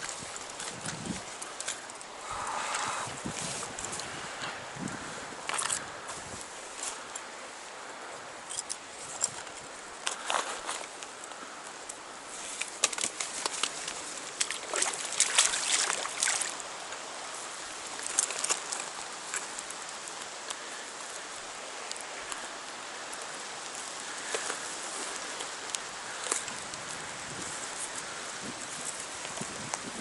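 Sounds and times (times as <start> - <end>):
river current rushing: 0.0 - 26.6
water splashing and sloshing: 5.3 - 7.1, 8.5 - 11.4, 12.2 - 20.3.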